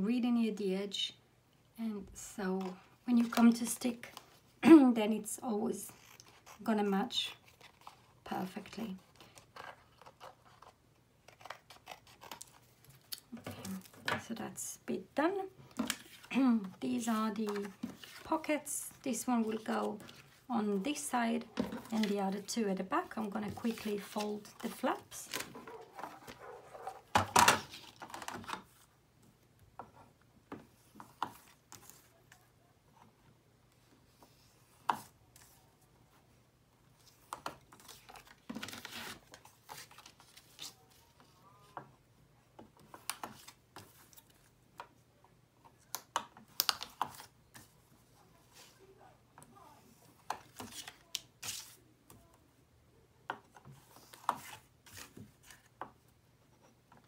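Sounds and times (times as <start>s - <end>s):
paper rustling: 21.6s - 28.8s, 50.3s - 51.8s.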